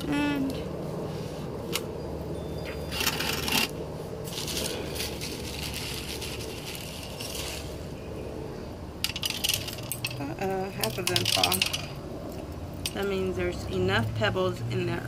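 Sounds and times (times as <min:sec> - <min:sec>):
pebbles clinking and rattling: 0:09.0 - 0:12.0.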